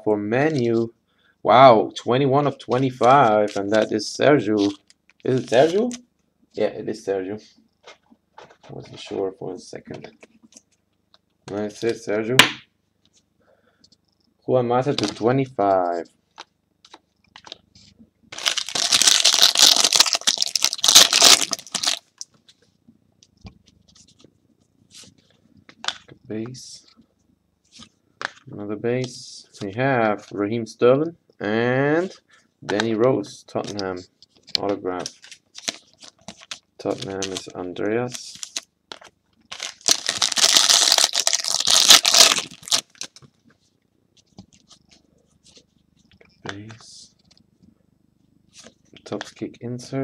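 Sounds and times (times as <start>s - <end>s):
foil wrapper tearing and crinkling: 18.3s - 22.2s, 38.3s - 43.2s.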